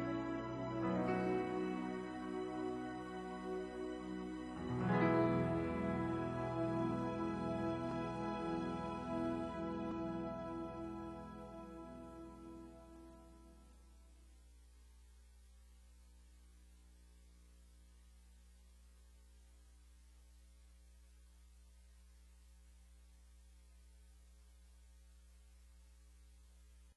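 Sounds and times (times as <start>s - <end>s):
closing music: 0.0s - 13.8s
faint mains hum: 0.0s - 26.9s.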